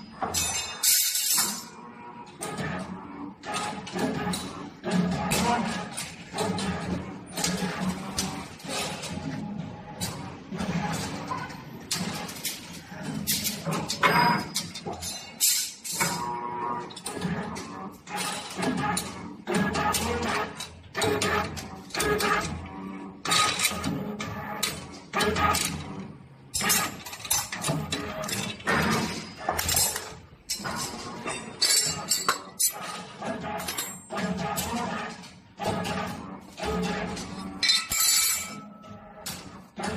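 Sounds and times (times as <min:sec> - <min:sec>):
wire bending machine clatter: 0:00.0 - 0:39.9
metal tubes clinking and rattling: 0:00.2 - 0:01.8, 0:11.9 - 0:16.2, 0:26.5 - 0:35.3, 0:36.9 - 0:39.9.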